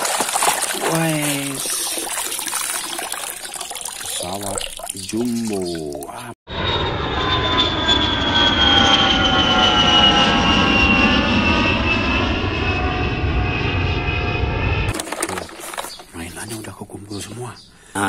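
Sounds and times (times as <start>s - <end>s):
jet engine rumble: 6.5s - 15.0s
jet turbine whine: 6.5s - 15.1s.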